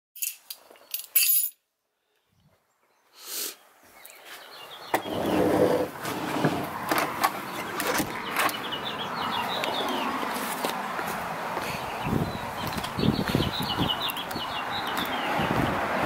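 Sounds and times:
birds chirping: 1.8s - 16.0s
footsteps on paved path: 3.8s - 5.0s, 6.7s - 15.9s.

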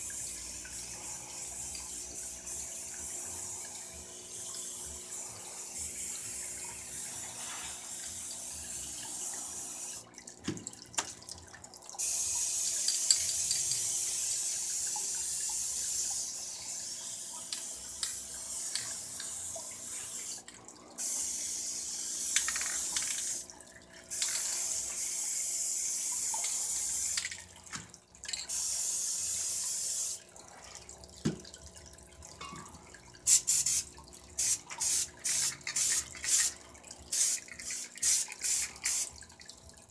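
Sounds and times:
aerosol spray can hissing: 28.5s - 30.2s, 33.3s - 33.8s, 34.4s - 39.1s.

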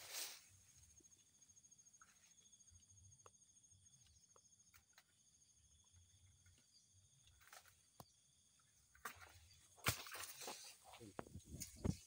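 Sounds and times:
faint rustle: 0.0s - 1.2s.

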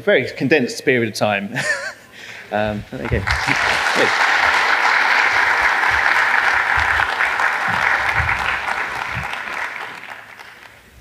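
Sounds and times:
audience applauding: 3.0s - 10.9s.

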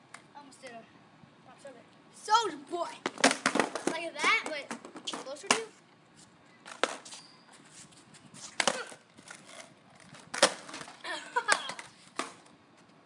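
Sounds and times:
skateboard clacking on concrete: 3.0s - 5.7s, 8.6s - 12.5s.

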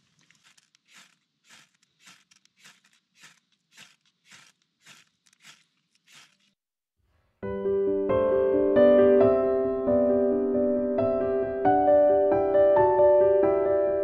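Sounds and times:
knife scraping fire-starter rod: 0.0s - 6.6s.

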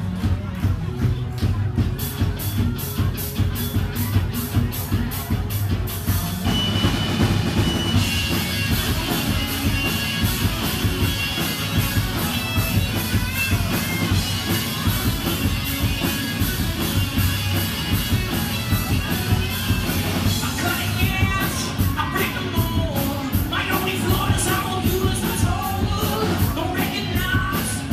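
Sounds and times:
high bending guitar line: 0.0s - 27.9s
live rock band playing: 0.0s - 27.9s.

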